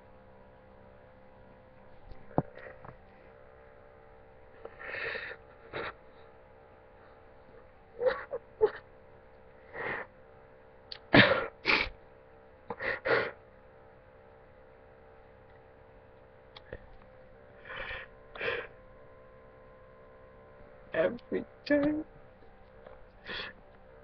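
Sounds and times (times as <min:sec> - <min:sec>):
person sobbing: 0:04.9 - 0:06.0, 0:08.0 - 0:08.8, 0:11.0 - 0:11.9.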